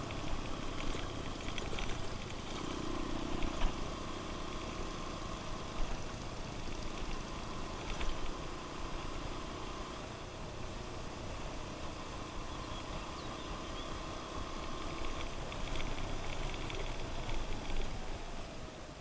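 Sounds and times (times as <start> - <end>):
light clicks and rattles: 0.0 - 3.9, 5.8 - 8.4, 14.7 - 18.1
motorcycle engine running: 0.0 - 18.8.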